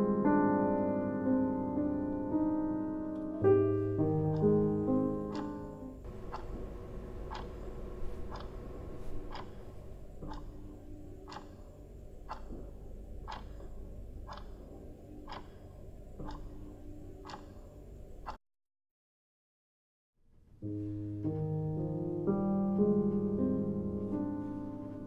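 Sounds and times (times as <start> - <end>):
faint low hum: 1.8 - 18.3
clock ticking: 4.0 - 18.4.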